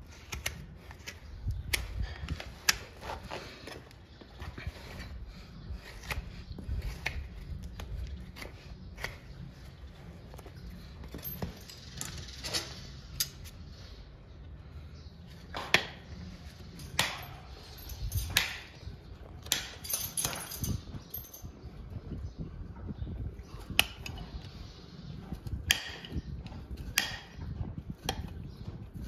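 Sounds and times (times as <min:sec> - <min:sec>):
metal clinks and taps: 0:10.4 - 0:12.6, 0:16.7 - 0:21.6.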